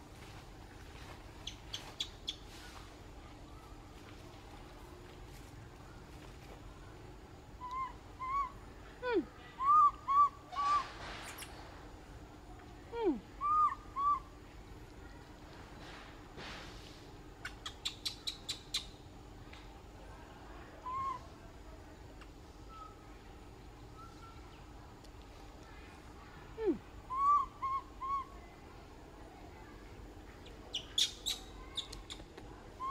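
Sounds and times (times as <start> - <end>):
baby monkey coo calls: 7.6 - 8.6, 9.5 - 11.6, 13.4 - 14.3, 20.8 - 21.3, 27.1 - 28.4, 30.4 - 32.9.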